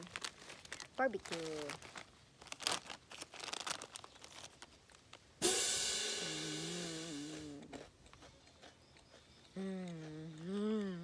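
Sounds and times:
chewing potato chips: 0.0s - 5.2s, 7.5s - 11.0s
cymbal crash with held tone: 5.4s - 7.5s.

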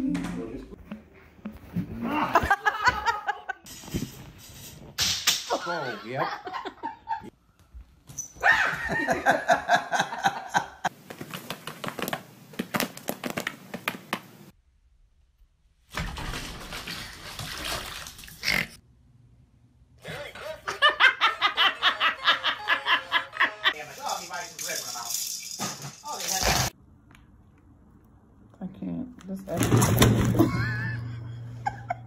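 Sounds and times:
person laughing: 2.0s - 3.7s, 20.0s - 23.8s, 30.4s - 32.0s.

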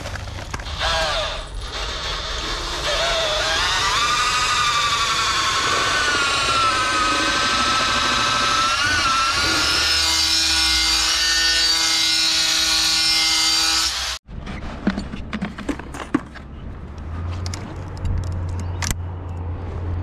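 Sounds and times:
power tool motor whine: 0.6s - 11.7s.

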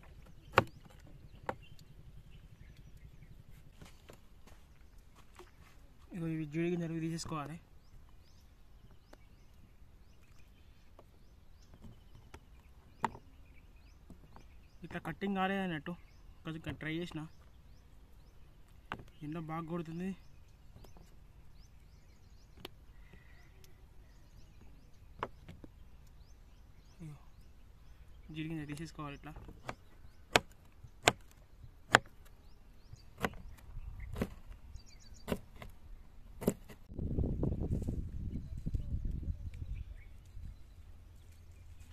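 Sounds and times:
faint bird chirps: 0.0s - 30.4s, 37.4s - 41.9s
light outdoor hiss: 0.0s - 36.8s
knife chopping on wooden board: 0.5s - 1.0s, 31.9s - 32.2s, 33.2s - 33.5s, 34.1s - 34.4s.

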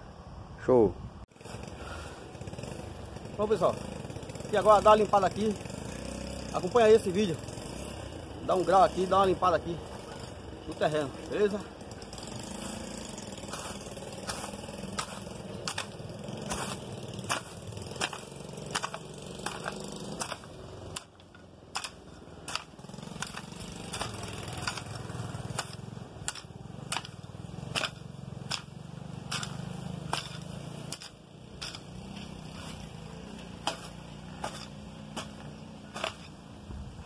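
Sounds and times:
hand hoe chopping into soil: 12.2s - 36.4s.

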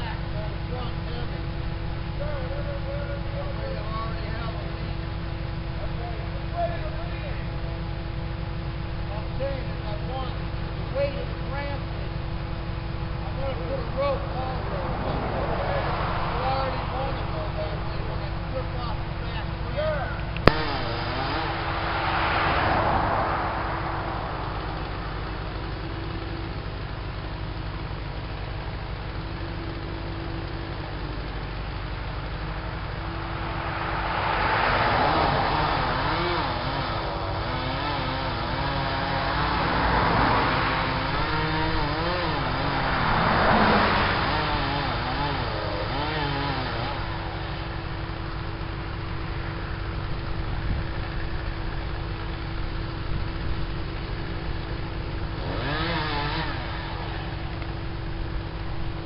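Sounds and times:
heavy engine running low: 0.0s - 59.0s
chainsaw running at high revs: 2.0s - 7.7s, 13.1s - 59.0s
broad rushing noise: 12.6s - 27.0s, 30.6s - 52.9s
wavering sound: 13.7s - 18.2s.

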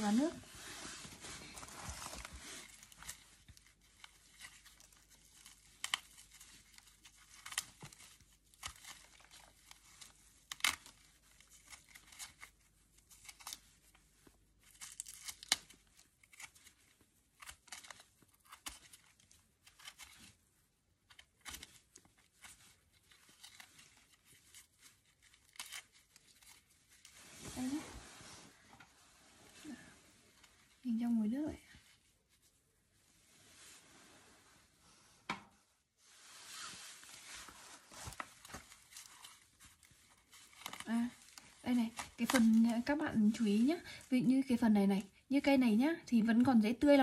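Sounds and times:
dry bulb scales crackling and tearing: 1.9s - 20.4s, 21.0s - 27.1s, 38.0s - 44.8s.

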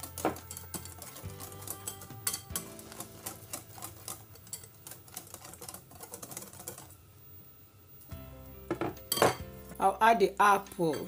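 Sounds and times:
whisk clicking against glass bowl: 0.0s - 6.9s.

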